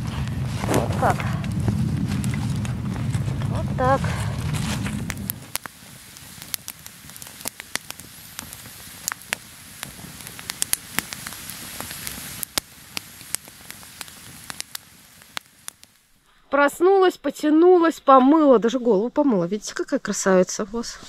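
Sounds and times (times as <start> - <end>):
campfire crackling and popping: 0.0 - 16.3
soft fire hiss: 0.0 - 21.0.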